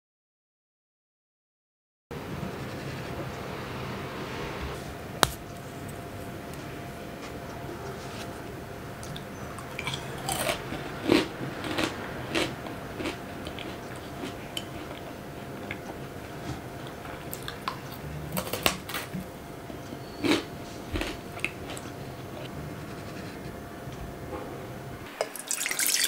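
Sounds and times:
meringue crunching: 5.1s - 24.9s.

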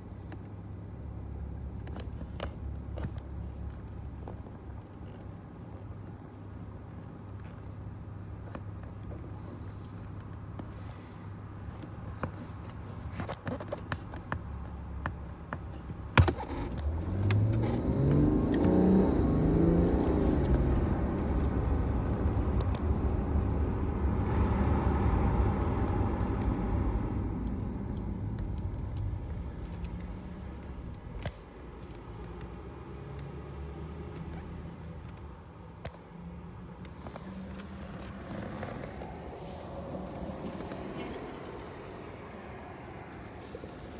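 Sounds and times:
road noise: 0.0s - 43.9s
car engine accelerating: 16.3s - 43.9s.

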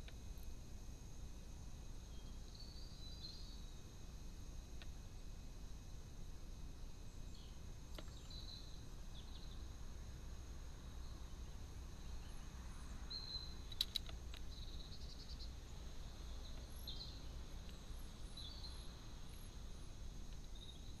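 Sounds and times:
background hiss: 0.0s - 21.0s
faint bird chirps: 2.1s - 3.8s, 7.1s - 9.7s, 11.0s - 21.0s
sharp clicks: 13.7s - 14.5s.

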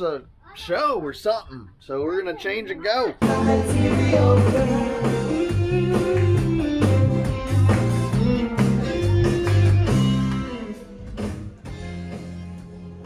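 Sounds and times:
bass guitar: 3.2s - 13.0s
drums: 3.2s - 13.0s
guitar: 3.2s - 13.0s.

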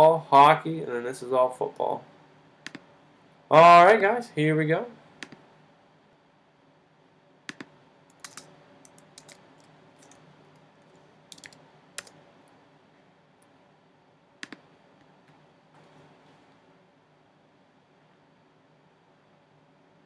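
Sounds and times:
keyboard and mouse clicks: 2.6s - 2.8s, 5.2s - 5.4s, 7.5s - 12.2s, 14.4s - 14.7s.

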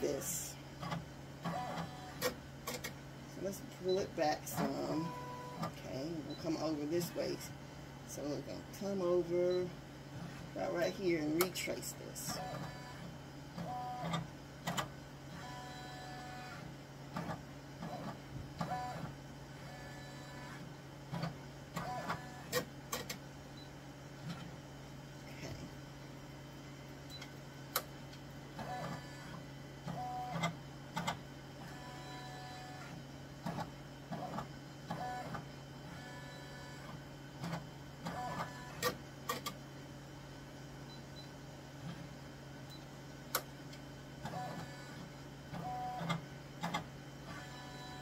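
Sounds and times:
embroidery machine hum: 0.0s - 48.0s.

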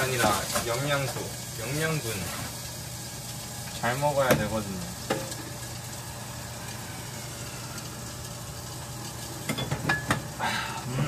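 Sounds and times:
beef sizzling in a pan: 0.0s - 11.0s.

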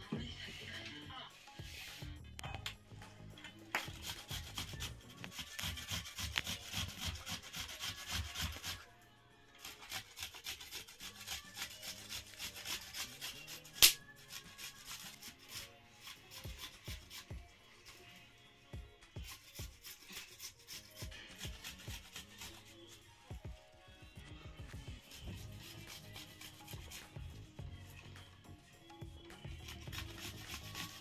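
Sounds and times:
knife scraping vegetables: 3.7s - 8.8s, 9.6s - 18.1s, 19.2s - 23.2s, 25.0s - 27.2s, 29.4s - 31.0s.

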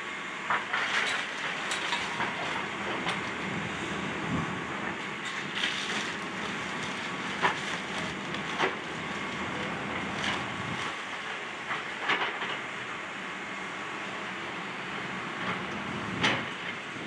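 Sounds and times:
excavator running: 0.0s - 17.0s.

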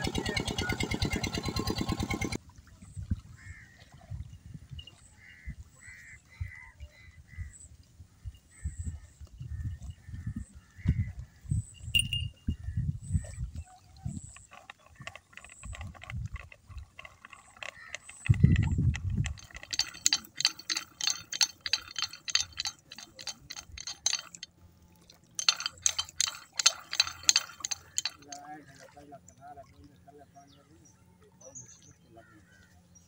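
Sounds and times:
water splashing with low thumps: 9.1s - 30.5s.

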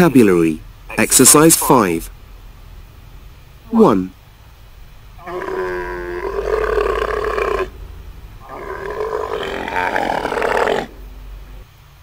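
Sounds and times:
camel calling: 5.1s - 11.6s.

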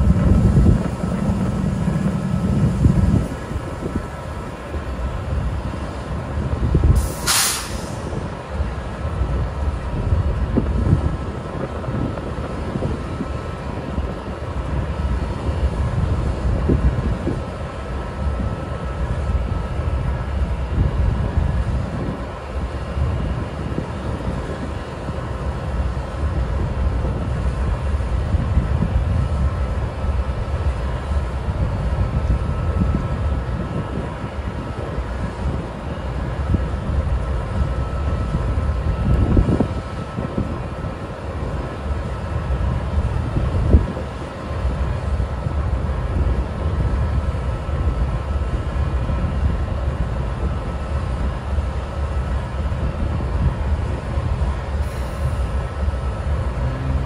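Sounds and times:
diesel locomotive idling: 0.0s - 57.0s
air hiss: 7.0s - 8.2s.

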